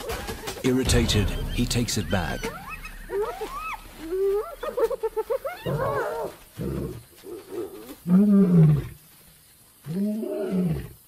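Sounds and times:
hyenas chattering and whooping: 0:02.6 - 0:08.1.

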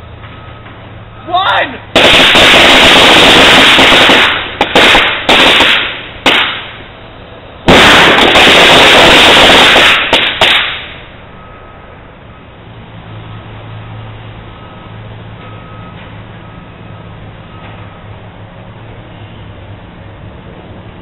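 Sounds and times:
fireworks exploding: 0:01.9 - 0:06.8, 0:07.6 - 0:11.1.

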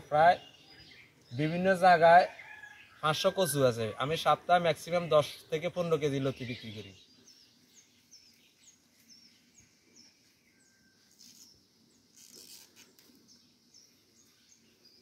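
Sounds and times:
small bird chirping: 0:06.3 - 0:15.0.

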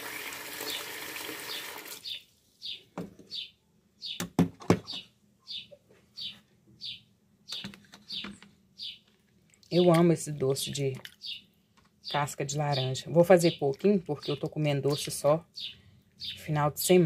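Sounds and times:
tap water running into bowl: 0:00.0 - 0:02.0
small bird chirping: 0:01.5 - 0:09.1, 0:11.1 - 0:16.6.

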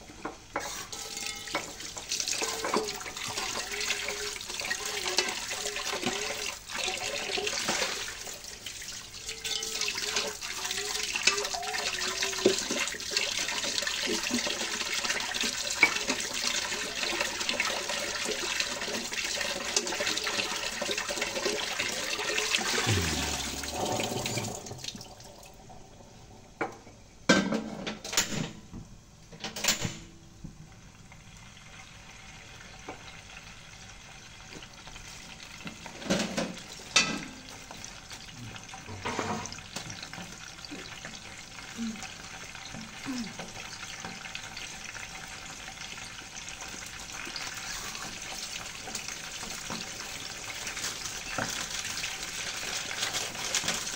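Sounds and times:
kitchen tap running into sink: 0:00.8 - 0:25.6.

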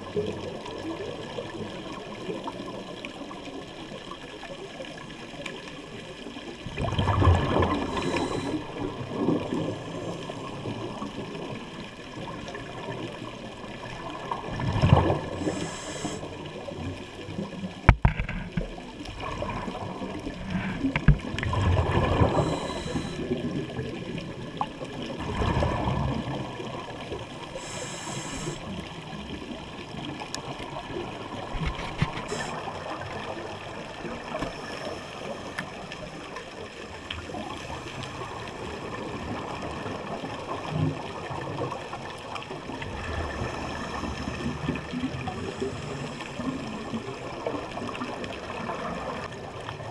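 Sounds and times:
exhaled bubbles gurgling underwater: 0:00.0 - 0:49.9
regulator inhale hiss: 0:07.6 - 0:08.8, 0:15.3 - 0:16.4, 0:22.2 - 0:23.4, 0:27.2 - 0:28.8, 0:32.2 - 0:32.7, 0:34.4 - 0:36.0, 0:45.2 - 0:46.7.

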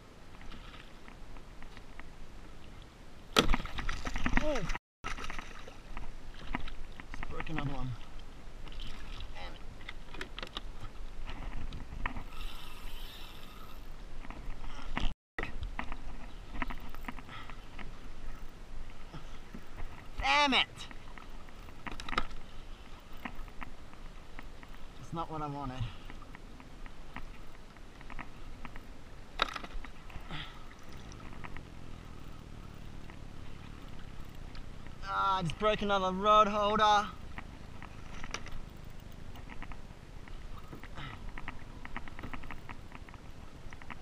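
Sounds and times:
wind: 0:00.0 - 0:44.0
fishing gear clicks and knocks: 0:09.8 - 0:13.1, 0:20.9 - 0:24.8, 0:26.0 - 0:35.0, 0:37.2 - 0:44.0
fishing reel drag screaming: 0:12.3 - 0:13.9.

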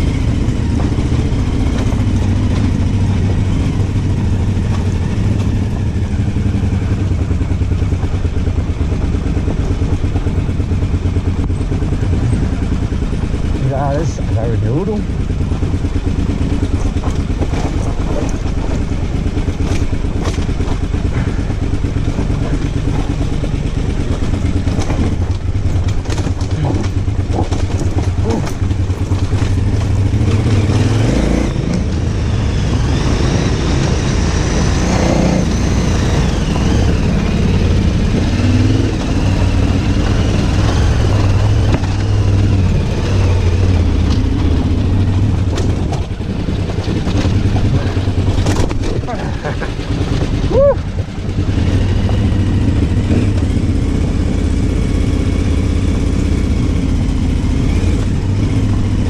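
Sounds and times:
motorcycle engine running: 0:00.0 - 0:59.0
sharp clicks and knocks: 0:16.5 - 0:30.9, 0:43.8 - 0:49.1.

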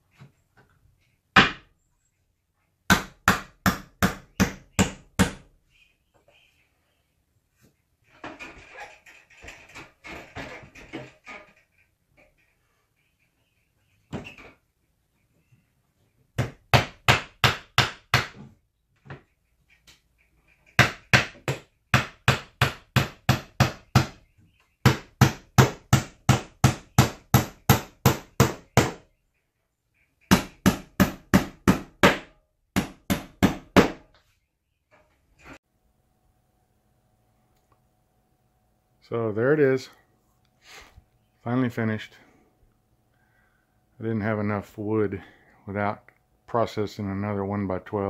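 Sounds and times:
hammer driving nails into wood: 0:02.9 - 0:05.5, 0:16.4 - 0:18.4, 0:20.7 - 0:24.2, 0:24.8 - 0:29.0, 0:30.3 - 0:34.0.

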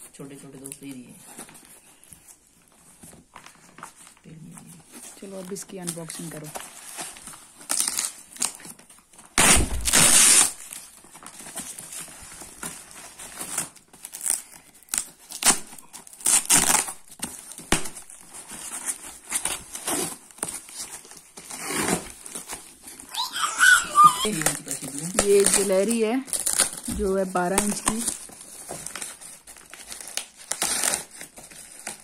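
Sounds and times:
plastic wrapping crinkling and tearing: 0:00.3 - 0:32.0
box cutter cutting packing tape: 0:09.4 - 0:10.6, 0:15.0 - 0:18.0.

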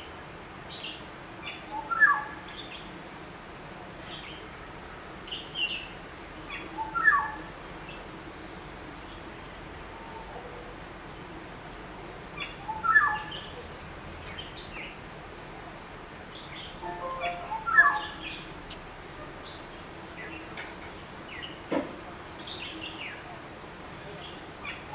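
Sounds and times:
faint high chirps: 0:16.7 - 0:18.9
thin high-pitched tone: 0:16.8 - 0:18.4
oriole calling: 0:16.8 - 0:18.8.

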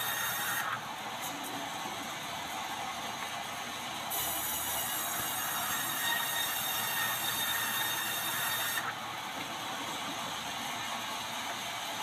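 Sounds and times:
band saw cutting wood: 0:00.0 - 0:00.8, 0:04.1 - 0:09.0
band saw running idle: 0:00.0 - 0:00.8, 0:04.1 - 0:09.0.

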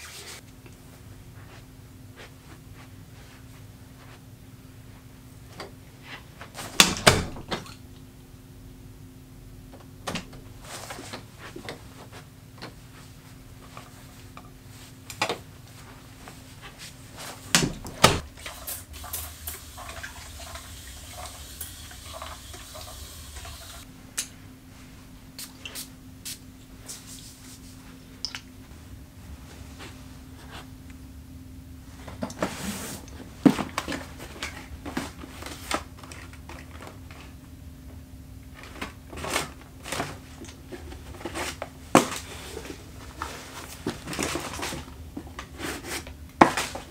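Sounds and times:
faint steady hum: 0:00.0 - 0:46.9
clothing rustles: 0:01.3 - 0:04.3, 0:10.5 - 0:18.2.

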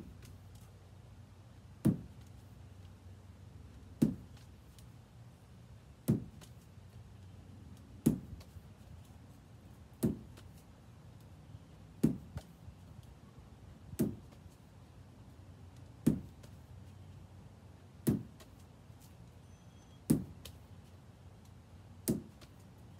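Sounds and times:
ball thudding into lacrosse stick: 0:01.8 - 0:02.4, 0:04.0 - 0:04.8, 0:06.0 - 0:06.6, 0:08.0 - 0:08.6, 0:09.9 - 0:10.6, 0:12.0 - 0:12.6, 0:13.9 - 0:14.5, 0:16.0 - 0:16.6, 0:18.0 - 0:18.6, 0:20.1 - 0:20.6, 0:22.0 - 0:22.6.

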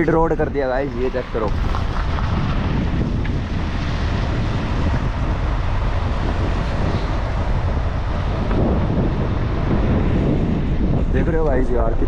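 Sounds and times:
vehicle running noise: 0:00.0 - 0:12.0
wind rushing over microphone: 0:00.0 - 0:12.0.

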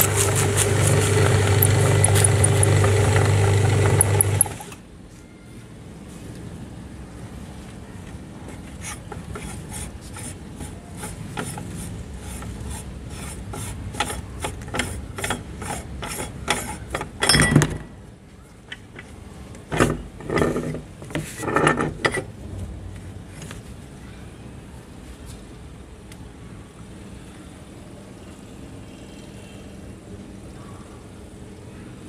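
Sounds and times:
metal grinder parts clicking: 0:00.0 - 0:04.8, 0:14.0 - 0:17.8
metal parts scraping: 0:08.8 - 0:17.8, 0:19.7 - 0:22.3.

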